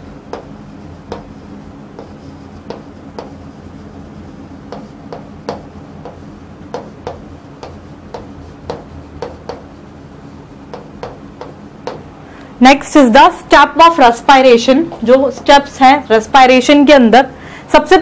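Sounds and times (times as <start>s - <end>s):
chalk tapping and scratching: 0.0s - 12.1s
low room hum: 0.0s - 18.0s.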